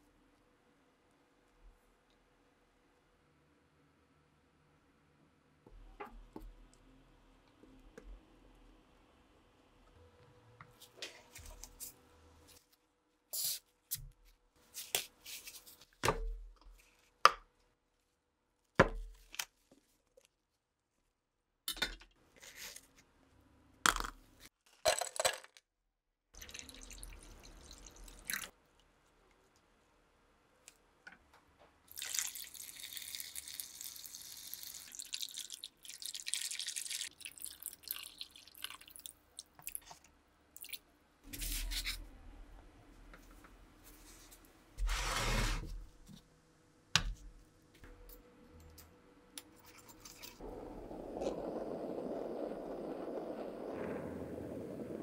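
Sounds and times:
water pouring and splashing: 0:26.4 - 0:28.5, 0:31.9 - 0:40.0.

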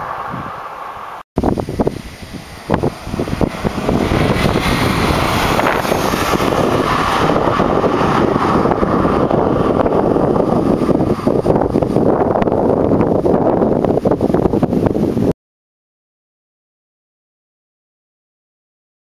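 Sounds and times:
wind buffeting microphone: 0:00.0 - 0:15.4
car driving past at speed: 0:02.0 - 0:12.4.

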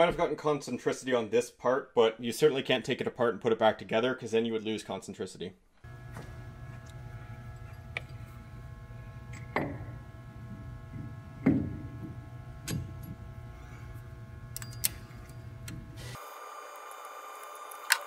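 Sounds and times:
steady low hum: 0:05.8 - 0:16.2.

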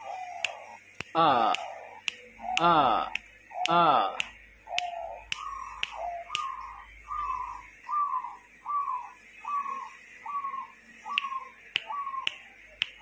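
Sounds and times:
dove cooing: 0:00.0 - 0:12.4
sharp clicks: 0:00.4 - 0:06.5, 0:11.2 - 0:13.0.

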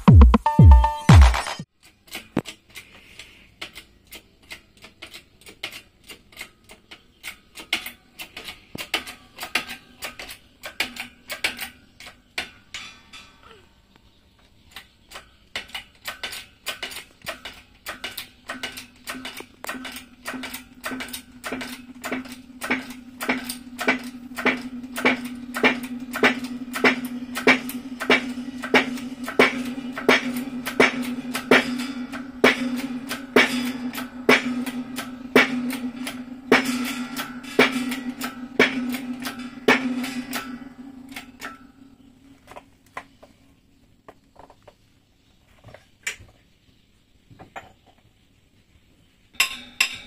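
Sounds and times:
hammer tapping on metal: 0:17.8 - 0:41.7.

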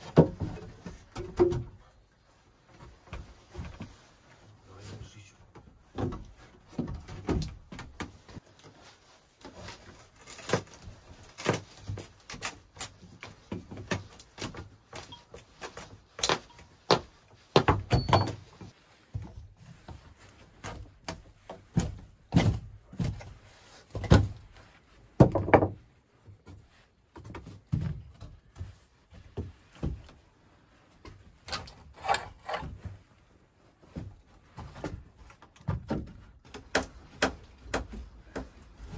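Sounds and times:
irregular knocks and thuds: 0:00.0 - 0:02.0, 0:05.5 - 0:08.4, 0:16.4 - 0:30.2, 0:33.9 - 0:38.9.

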